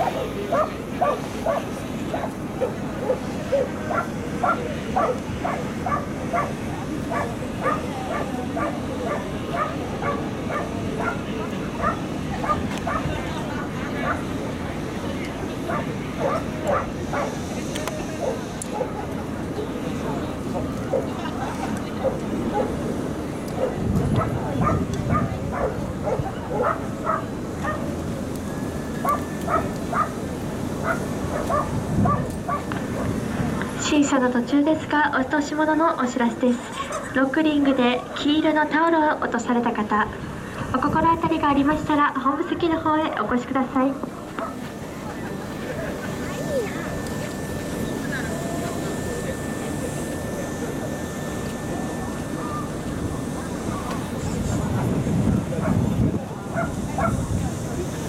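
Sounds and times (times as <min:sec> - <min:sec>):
dog barking: 0:00.0 - 0:11.2, 0:11.8 - 0:13.1, 0:15.7 - 0:17.4, 0:18.2 - 0:19.1, 0:22.0 - 0:22.7, 0:23.6 - 0:27.8, 0:29.0 - 0:30.2, 0:30.8 - 0:33.1, 0:55.6 - 0:55.8, 0:56.5 - 0:57.2
low background murmur: 0:00.0 - 0:58.0.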